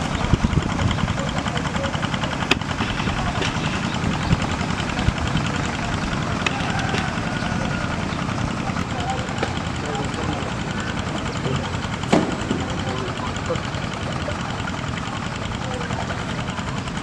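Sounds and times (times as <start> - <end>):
small engine running: 0.0 - 17.0
sharp clicks: 2.2 - 15.4.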